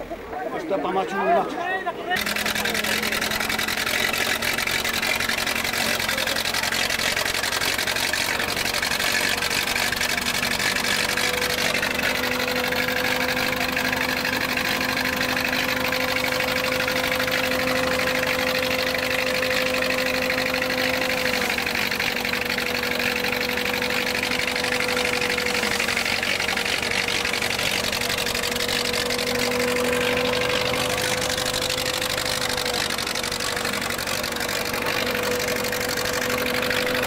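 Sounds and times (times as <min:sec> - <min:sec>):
stationary engine humming: 0:00.0 - 0:37.0.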